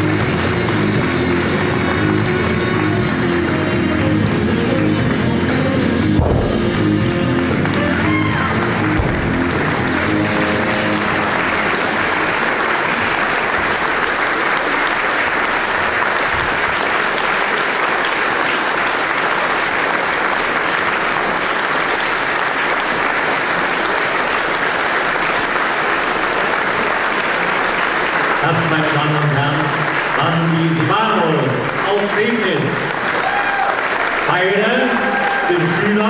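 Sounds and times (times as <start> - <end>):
backing music: 0.0 - 17.5
audience applauding: 0.0 - 36.0.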